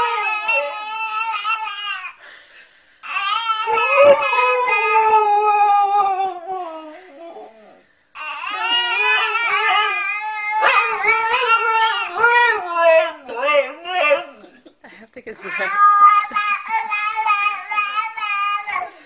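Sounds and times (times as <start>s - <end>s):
dog howling: 0.0s - 1.6s, 3.5s - 7.8s, 8.5s - 14.6s.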